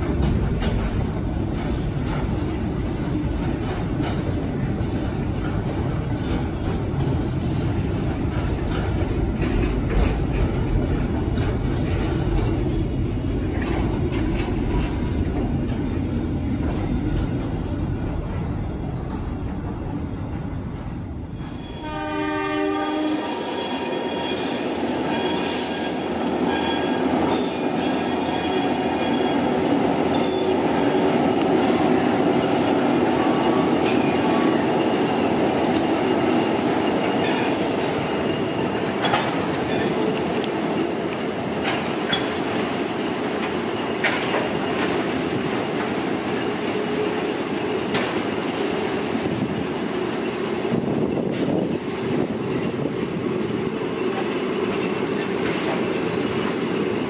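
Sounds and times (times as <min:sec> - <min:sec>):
wheels clicking over rail joints: 0:00.0 - 0:19.8, 0:28.5 - 0:57.0
freight train rumbling on rails: 0:00.0 - 0:57.0
train horn: 0:21.5 - 0:29.5.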